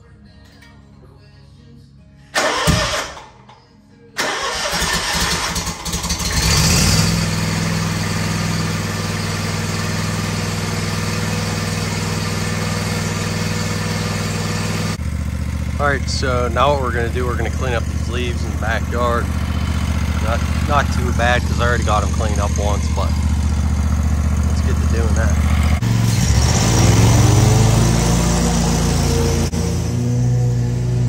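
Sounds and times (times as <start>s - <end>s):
mower engine cranking and running: 2.4s - 3.5s, 4.2s - 28.0s.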